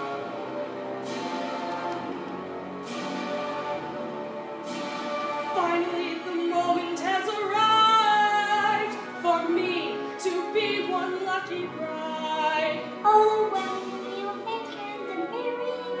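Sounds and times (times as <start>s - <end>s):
woman singing an aria: 5.5s - 16.0s.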